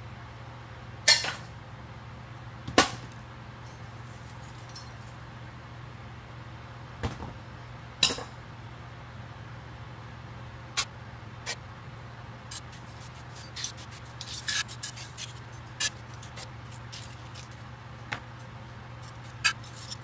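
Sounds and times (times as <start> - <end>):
steady low hum: 0.0 - 20.0
scrap metal clanking: 12.5 - 17.5.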